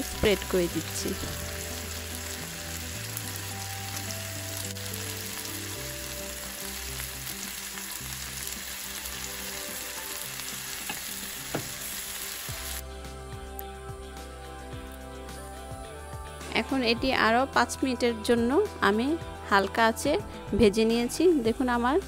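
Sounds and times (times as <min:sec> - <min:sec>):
chicken sizzling in oil: 0:00.0 - 0:12.8.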